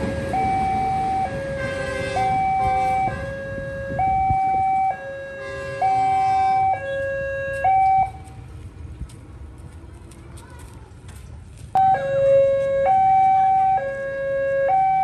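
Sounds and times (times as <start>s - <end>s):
level crossing warning alarm: 0.0s - 8.3s, 11.8s - 15.0s.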